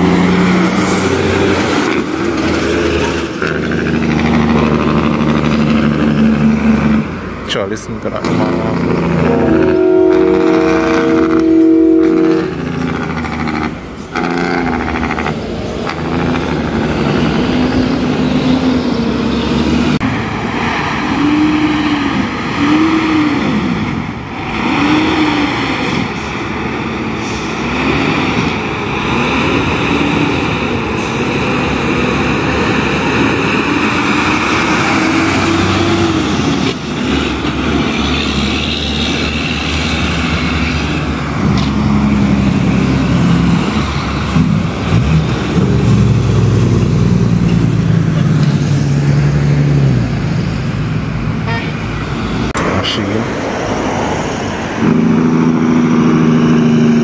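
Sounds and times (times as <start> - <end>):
multi-note air horn: 8.2 - 15.2, 51.4 - 51.8.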